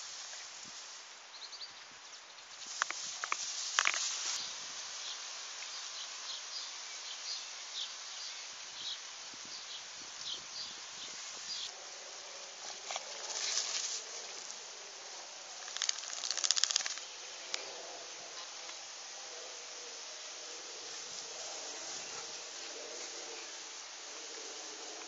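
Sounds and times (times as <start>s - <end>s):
outdoor hiss: 0.0s - 25.0s
rustling and scraping: 12.6s - 14.5s.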